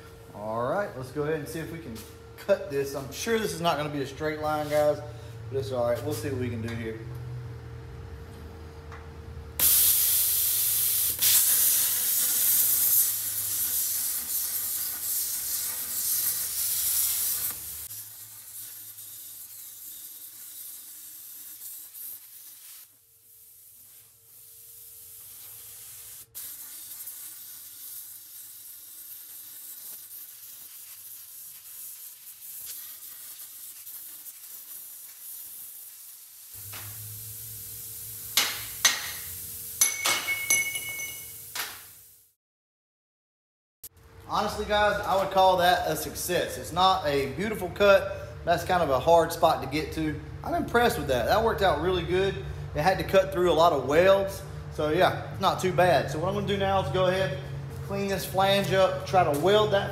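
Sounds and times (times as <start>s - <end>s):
plasma cutter hissing: 9.6s - 42.2s.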